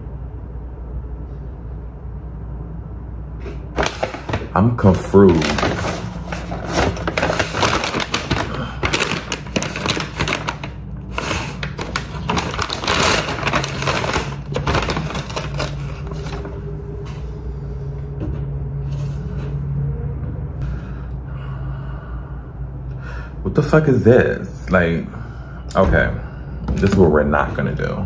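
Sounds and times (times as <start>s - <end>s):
steady low hum: 0.0s - 28.0s
food packaging rustling: 3.4s - 17.2s.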